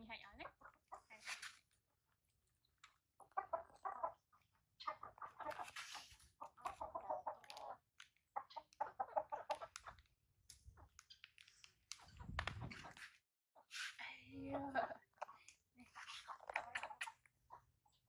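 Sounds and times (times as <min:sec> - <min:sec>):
chicken clucking: 0:03.2 - 0:10.1, 0:14.5 - 0:17.6.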